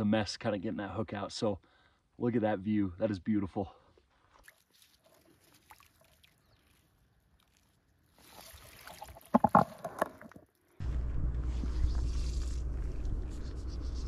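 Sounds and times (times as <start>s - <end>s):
water splashing: 4.3s - 10.8s.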